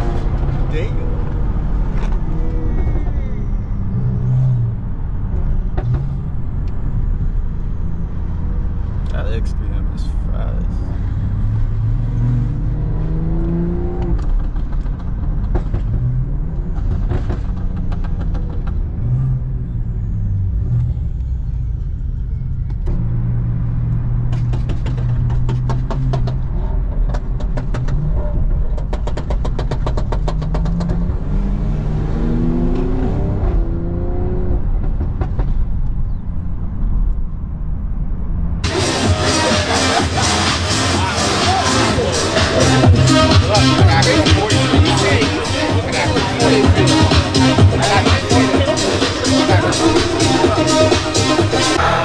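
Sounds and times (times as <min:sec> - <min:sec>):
car engine revving hard: 0:11.2 - 0:14.3, 0:29.2 - 0:34.8, 0:38.6 - 0:52.0
sharp exhaust pops: 0:24.2 - 0:31.2.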